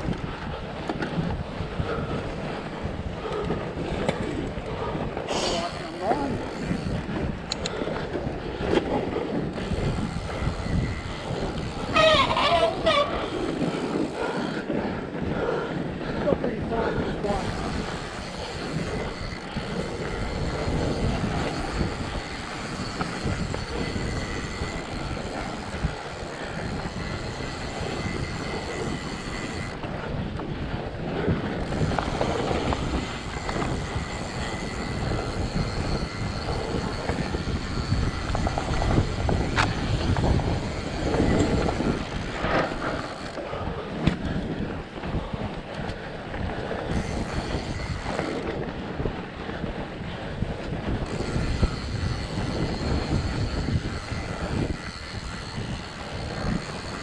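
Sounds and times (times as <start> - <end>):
tyres rumbling over snow: 0.0 - 57.0
wind buffeting microphone: 0.0 - 57.0
bike knocks and rattles: 50.8 - 57.0.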